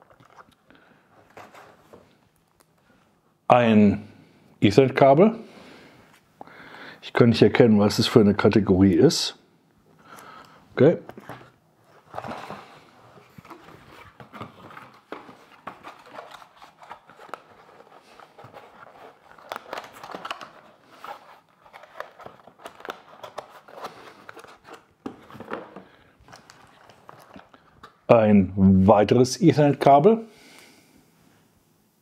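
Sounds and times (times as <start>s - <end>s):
cardboard rustling and scraping: 1.2s - 2.2s, 11.1s - 27.5s.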